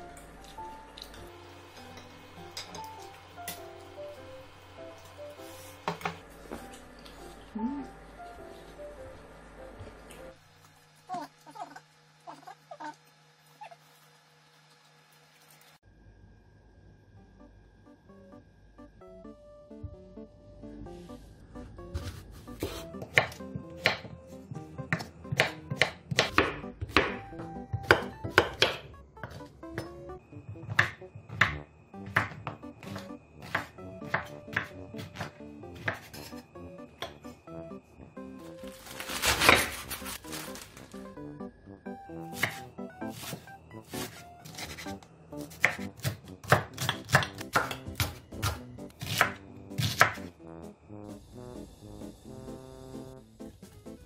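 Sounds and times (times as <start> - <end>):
soft background music: 0.0 - 10.4, 17.1 - 54.0
knife chopping on wooden board: 22.0 - 24.2, 24.9 - 29.5, 30.7 - 36.4, 42.4 - 44.9, 45.6 - 50.2.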